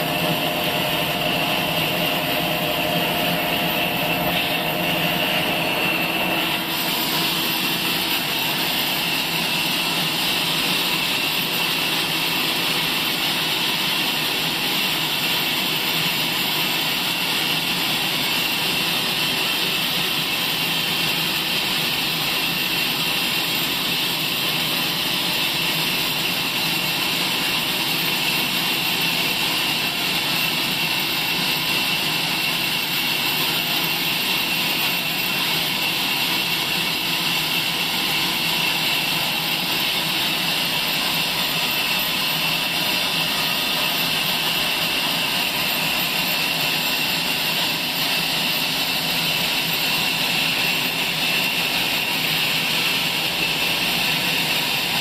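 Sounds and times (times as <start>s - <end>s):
band saw cutting log: 0.0s - 13.4s.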